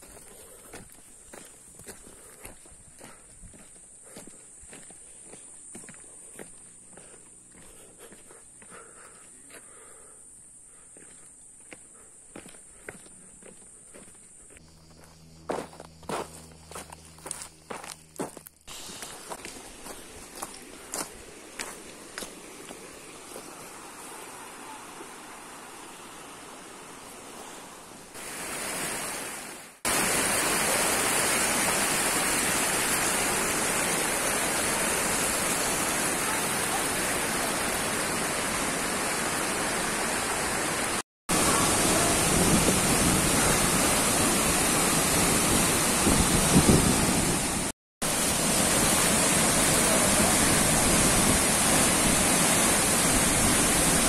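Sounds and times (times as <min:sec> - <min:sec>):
waterfall rushing into a pool: 0:28.2 - 0:54.0.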